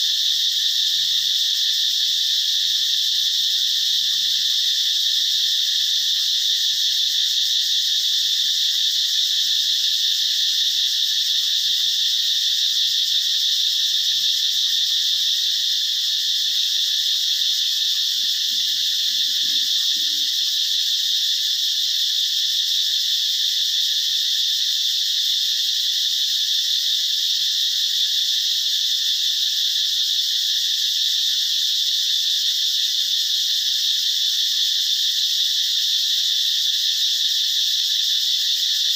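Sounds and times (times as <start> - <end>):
high-pitched animal chorus: 18.5 - 20.3.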